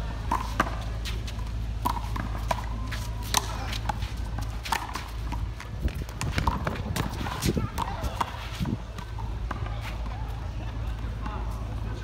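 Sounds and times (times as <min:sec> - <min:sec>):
sneakers squeaking on concrete: 0:00.0 - 0:12.0
handball smacking concrete: 0:00.3 - 0:09.8.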